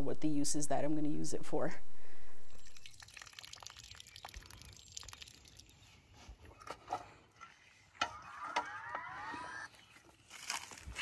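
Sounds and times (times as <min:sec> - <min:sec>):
short rising whine: 0:08.0 - 0:09.7
footsteps on dry grass: 0:09.7 - 0:11.0.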